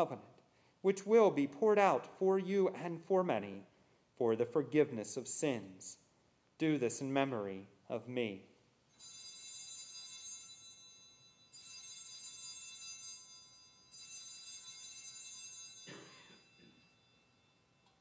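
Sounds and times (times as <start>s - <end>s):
altar bells ringing: 9.0s - 18.0s.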